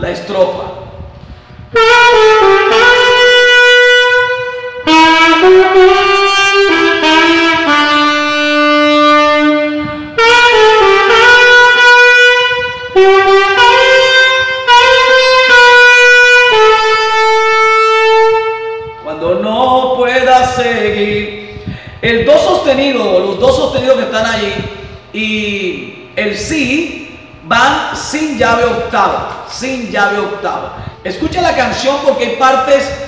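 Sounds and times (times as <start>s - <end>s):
solo alto saxophone melody: 1.5s - 19.1s.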